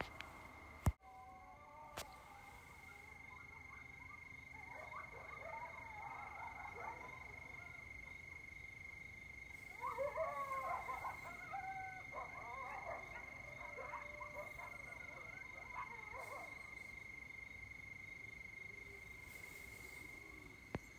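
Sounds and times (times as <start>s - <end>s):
coyotes yipping and howling: 0.0s - 20.9s
crickets trilling: 0.0s - 20.9s.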